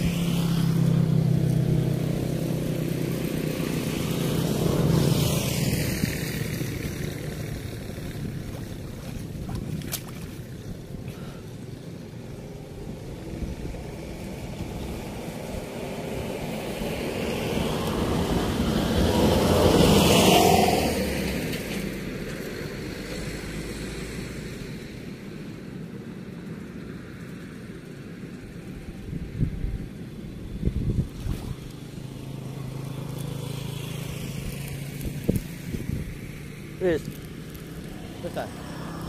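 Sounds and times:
vehicle passing by: 0:00.0 - 0:11.4, 0:12.0 - 0:25.5, 0:27.1 - 0:39.0.

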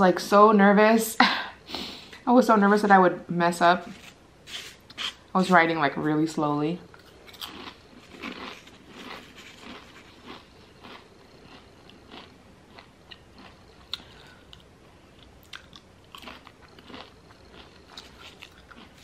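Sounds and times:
chewing crunchy chips: 0:06.9 - 0:19.0.

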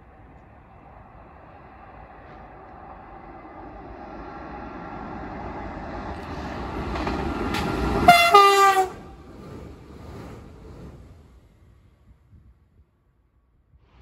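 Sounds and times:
train rolling noise: 0:00.0 - 0:12.8
two-tone train horn blast: 0:08.0 - 0:09.2.

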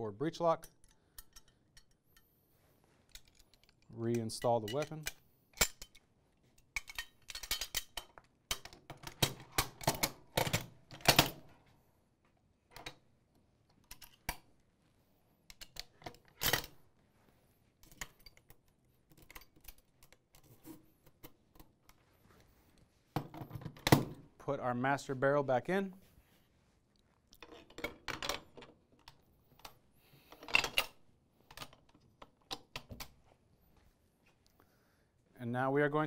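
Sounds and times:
steel gun parts clicking: 0:00.6 - 0:02.3, 0:03.1 - 0:06.0, 0:06.6 - 0:10.2.

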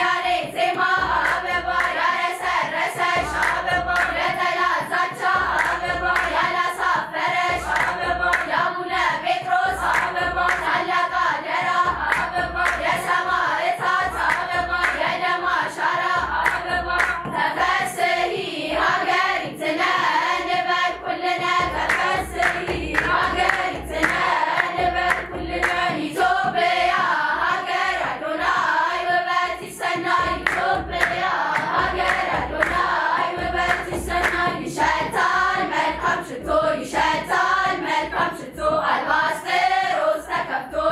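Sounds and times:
girls' choir singing hymn: 0:00.0 - 0:40.9
rhythmic hand clapping: 0:00.0 - 0:40.9
low drum beat: 0:03.2 - 0:04.4, 0:05.3 - 0:06.4, 0:07.4 - 0:08.5, 0:09.6 - 0:10.8, 0:11.8 - 0:13.0, 0:14.0 - 0:15.0, 0:16.1 - 0:17.3, 0:21.6 - 0:26.1, 0:30.1 - 0:35.0.

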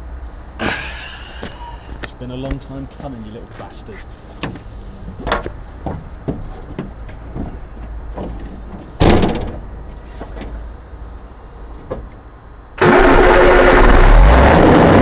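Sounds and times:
truck door slamming: 0:09.0 - 0:09.6.

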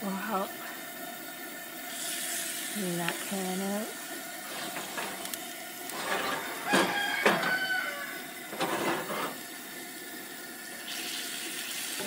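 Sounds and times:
wooden spoon scraping skillet: 0:04.4 - 0:07.7, 0:08.5 - 0:09.4.

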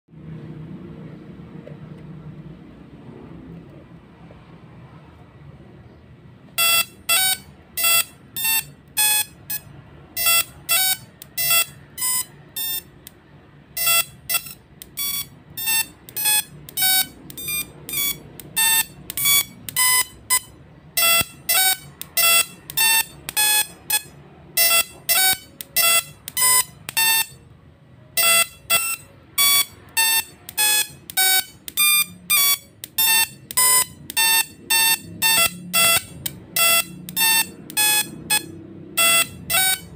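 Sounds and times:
musical tesla coil buzzy notes: 0:28.2 - 0:39.9.

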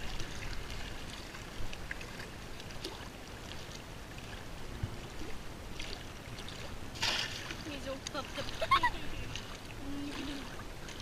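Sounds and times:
small waves lapping: 0:00.0 - 0:11.0
water trickling and dripping: 0:00.0 - 0:11.0.

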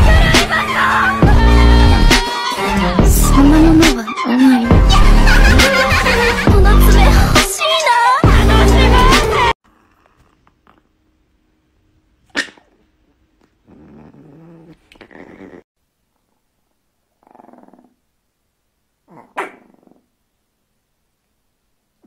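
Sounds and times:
small dogs growling: 0:09.6 - 0:11.0, 0:12.3 - 0:15.7, 0:17.2 - 0:18.0, 0:19.0 - 0:20.2.

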